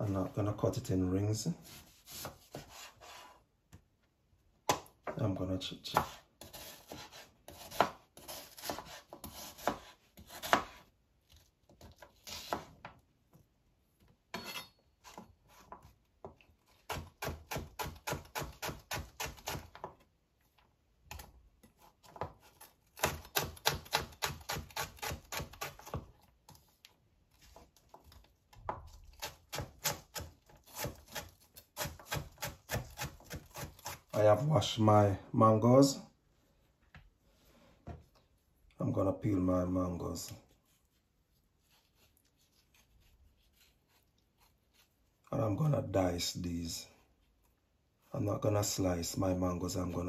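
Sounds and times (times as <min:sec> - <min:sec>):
knife chopping on cutting board: 0:01.6 - 0:03.3, 0:05.9 - 0:10.8, 0:28.7 - 0:34.1.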